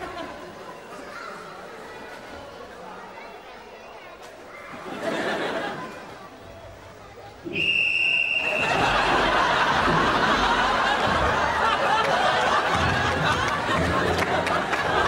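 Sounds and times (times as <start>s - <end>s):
audience laughing: 0.0s - 0.6s, 4.8s - 6.3s, 8.3s - 15.0s.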